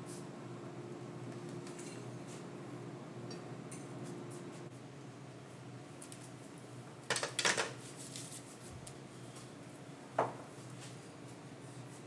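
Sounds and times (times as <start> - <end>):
low room hum: 0.0 - 12.0
clatter of hard objects: 7.1 - 7.8.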